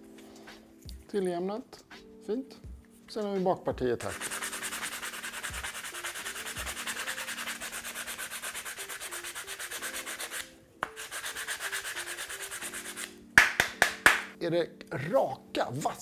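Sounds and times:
sandpaper rubbing wood: 4.0s - 13.2s.

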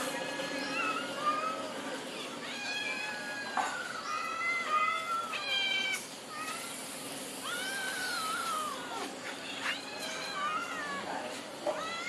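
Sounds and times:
cats meowing: 0.0s - 12.0s.

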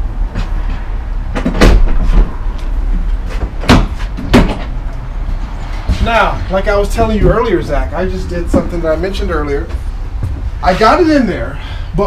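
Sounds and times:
steady low rumble: 0.0s - 12.0s
motorcycle knocks and clunks: 0.3s - 2.4s, 3.3s - 4.8s.

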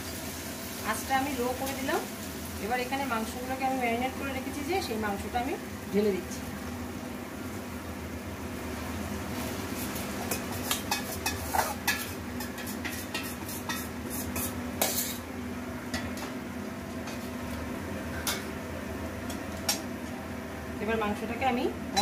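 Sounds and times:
metal bowl clinking and scraping pan: 10.2s - 15.2s.

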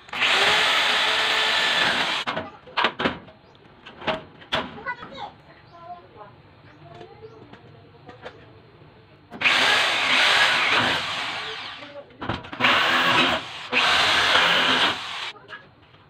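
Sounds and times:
electric drill boring into steel: 0.0s - 2.3s, 9.4s - 11.9s, 12.6s - 15.3s.

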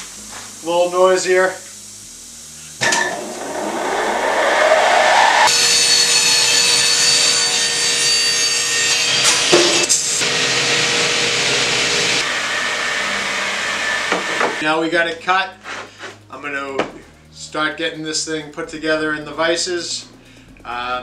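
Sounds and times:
mitre saw cutting wood: 5.4s - 14.6s.

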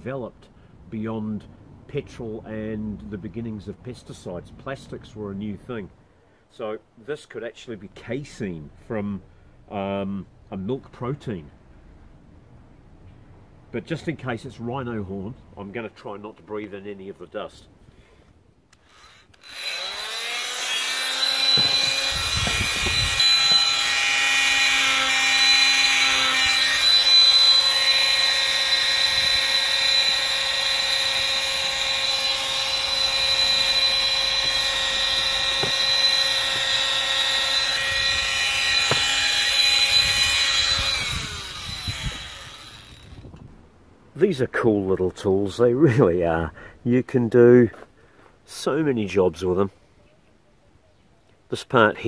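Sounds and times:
oscillating multi-tool buzzing: 18.7s - 43.3s.

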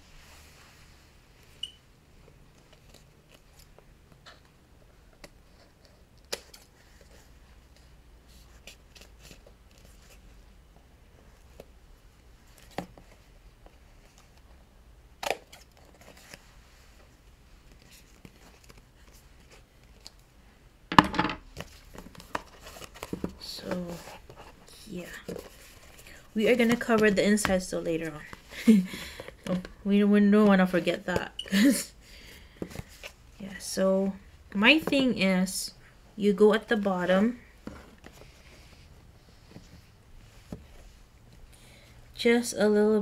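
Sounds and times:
faint room hum: 0.0s - 43.0s.

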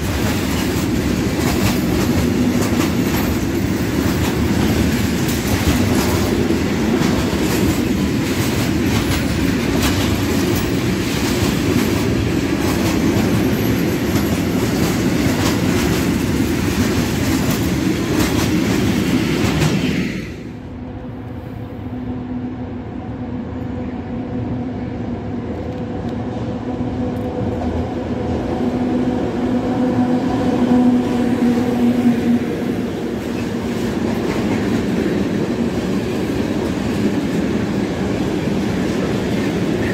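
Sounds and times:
freight train wheels clattering: 0.0s - 20.0s.

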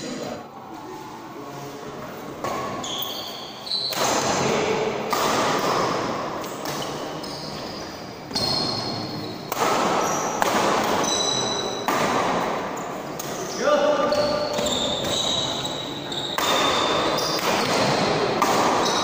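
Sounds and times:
shoes squeaking on court floor: 1.7s - 4.2s, 6.4s - 11.9s, 14.0s - 19.0s
racket hitting shuttlecock: 3.9s - 7.1s, 8.3s - 13.4s, 16.3s - 19.0s.

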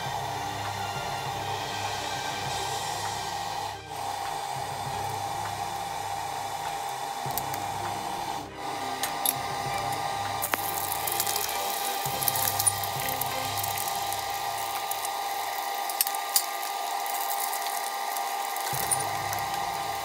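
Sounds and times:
hot oil sizzling: 0.0s - 20.0s
whirring hum: 0.0s - 20.0s.

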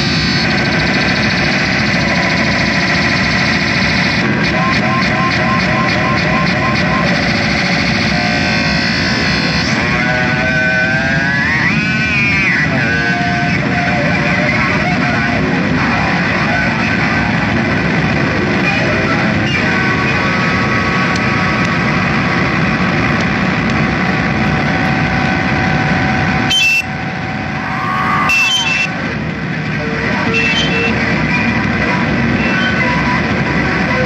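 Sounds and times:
harsh distorted noise music: 0.0s - 34.0s
swooping high tones: 24.4s - 29.2s.

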